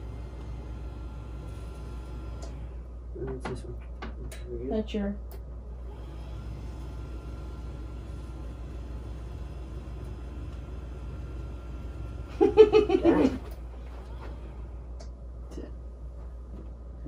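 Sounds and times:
desk lift motor humming: 0:00.0 - 0:04.3, 0:05.4 - 0:17.0
burst of laughter: 0:12.3 - 0:13.4.

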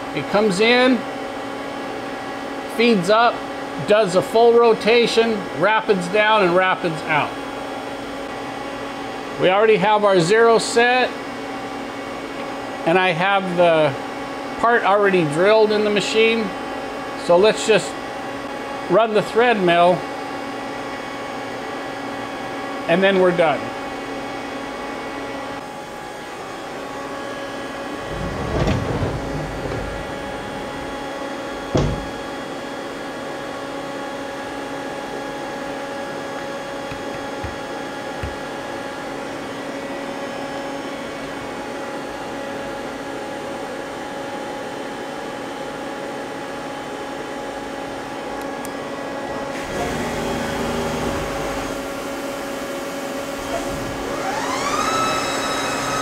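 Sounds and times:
lathe machine whine: 0:23.8 - 0:42.5, 0:49.5 - 0:56.0
short thumps: 0:28.0 - 0:31.0, 0:31.6 - 0:32.2.

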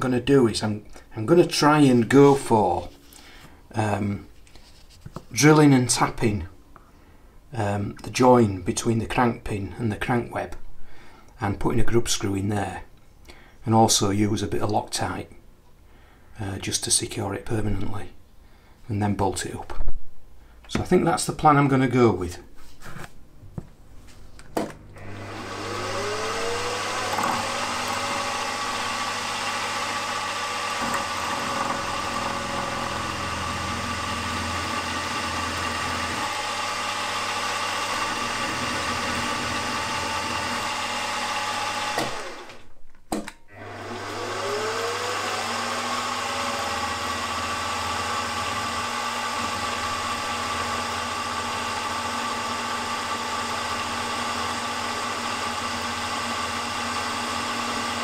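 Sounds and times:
milling machine motor whine: 0:24.9 - 0:42.6, 0:43.6 - 0:58.0
drill cutting metal: 0:25.0 - 0:42.6, 0:43.6 - 0:58.0.

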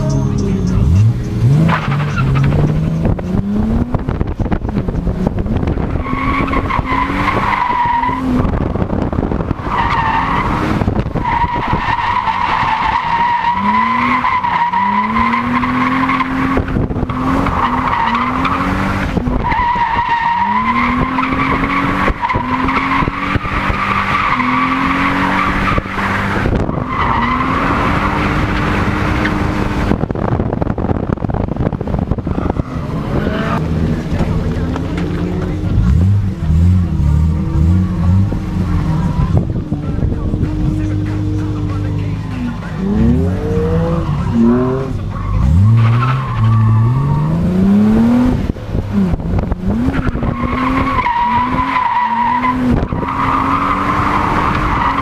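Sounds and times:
car engine revving: 0:00.0 - 0:55.0
tyres squealing: 0:49.8 - 0:55.0.

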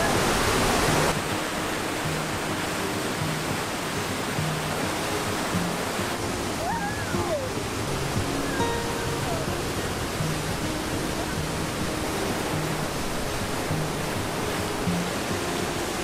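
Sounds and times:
waterfall rushing: 0:00.0 - 0:16.0
toddler calling out: 0:06.6 - 0:07.6.

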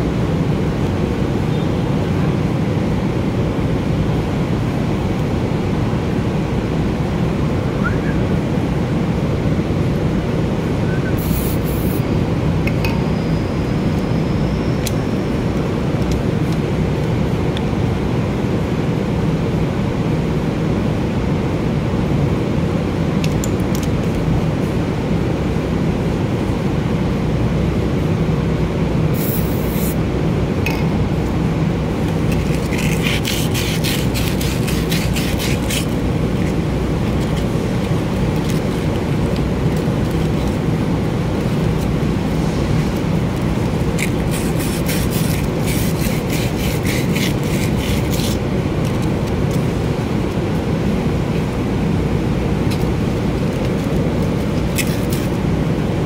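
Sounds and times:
sandpaper rubbing on metal: 0:11.2 - 0:12.0, 0:29.2 - 0:30.0, 0:32.4 - 0:36.1, 0:44.0 - 0:48.4.

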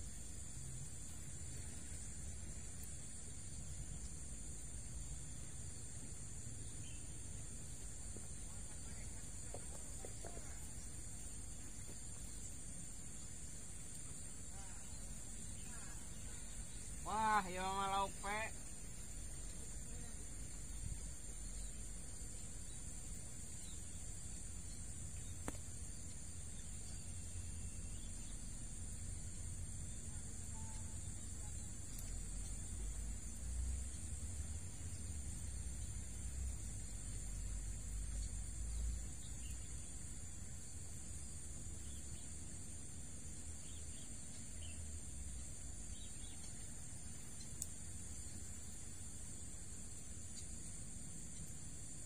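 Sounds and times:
insects droning: 0:00.0 - 0:52.0
faint bird chirps: 0:06.5 - 0:07.8, 0:13.9 - 0:18.2, 0:23.5 - 0:34.2, 0:43.5 - 0:48.6.

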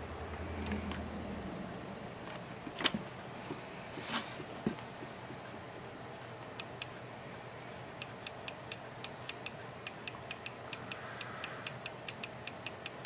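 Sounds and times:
microswitch clicking: 0:06.6 - 0:06.9, 0:08.0 - 0:13.0.

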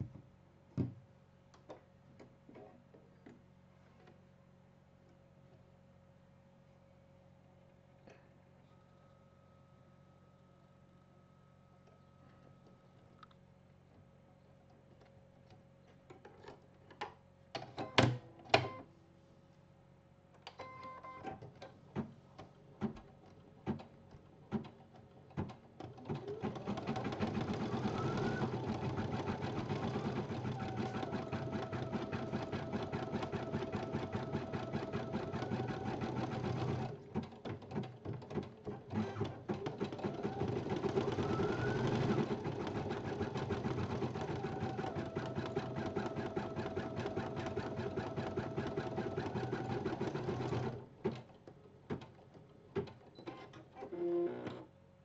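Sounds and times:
embroidery machine stitching: 0:25.8 - 0:54.6.

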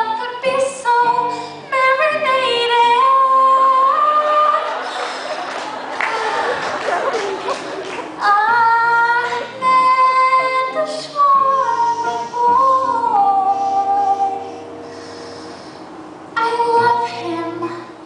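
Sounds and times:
acoustic guitar: 0:00.0 - 0:18.0
woman singing high notes: 0:08.2 - 0:14.9.

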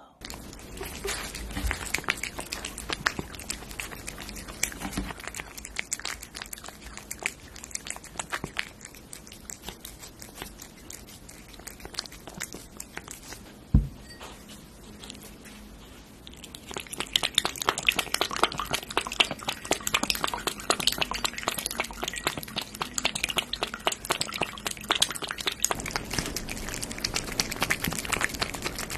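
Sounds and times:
cat licking and chewing food: 0:00.2 - 0:28.9
dull thumps: 0:13.7 - 0:14.0.

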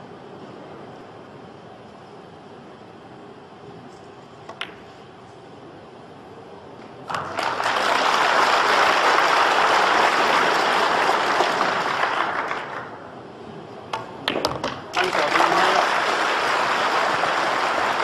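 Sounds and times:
audience applause: 0:07.1 - 0:13.0, 0:14.9 - 0:18.0.

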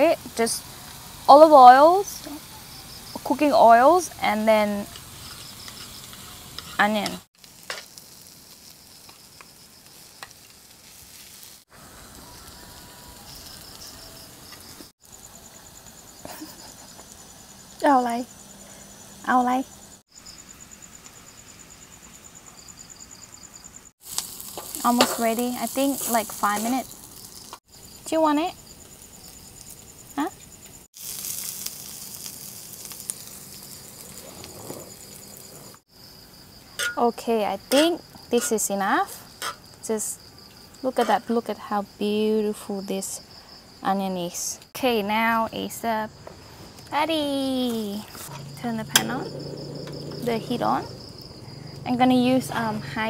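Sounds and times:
onions sizzling in oil: 0:00.0 - 0:21.9, 0:23.1 - 0:37.0
crickets chirping: 0:00.0 - 0:53.0.

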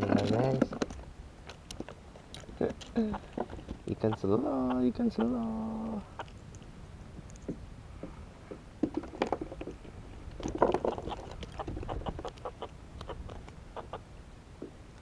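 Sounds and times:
knocks and rattles on a kayak: 0:00.0 - 0:01.0, 0:02.6 - 0:03.9, 0:07.4 - 0:12.3.

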